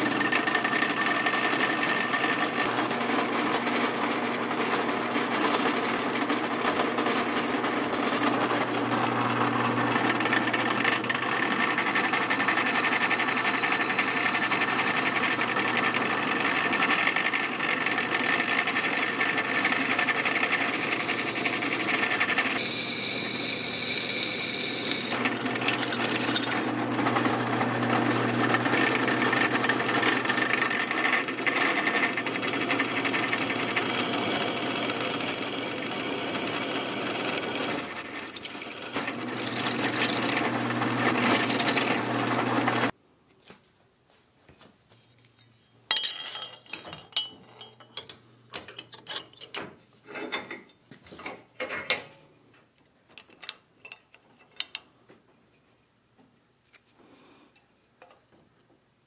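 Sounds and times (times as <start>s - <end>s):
drill press motor hum: 0.0s - 5.1s, 6.1s - 42.9s
drill bit grinding steel: 0.0s - 5.4s, 6.0s - 42.9s.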